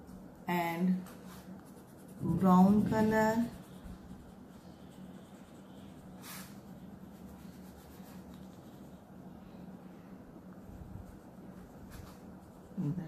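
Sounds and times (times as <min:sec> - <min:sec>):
oil pastel rubbing on paper: 0:01.0 - 0:09.0.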